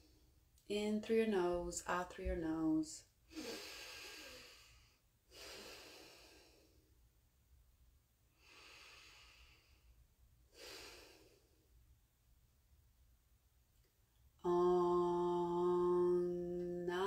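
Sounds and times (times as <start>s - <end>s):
woman breathing deeply through nose: 3.3s - 6.9s, 8.4s - 11.7s.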